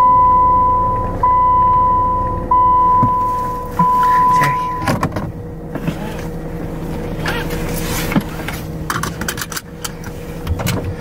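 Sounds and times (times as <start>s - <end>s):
car engine idling: 0.0s - 11.0s
seatbelt clicks and rustles: 7.2s - 11.0s.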